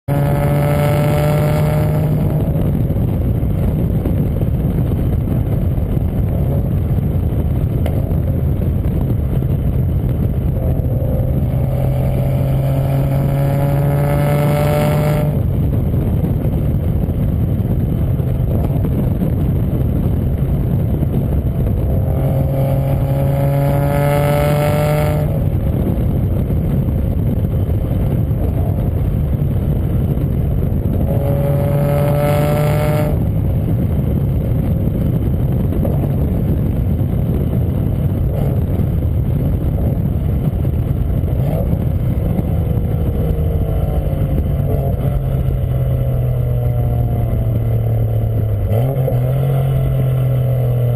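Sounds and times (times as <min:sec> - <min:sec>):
car engine through exhaust: 0:00.0 - 0:50.9
engine note climbing in pitch: 0:00.1 - 0:34.2.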